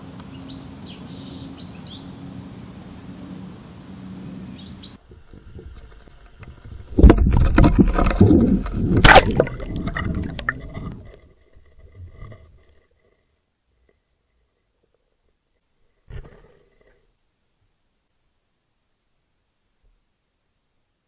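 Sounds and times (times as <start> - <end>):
bird chirp: 0.2 - 2.2, 4.2 - 5.0
muffled underwater rumbling and gurgling: 5.0 - 13.3.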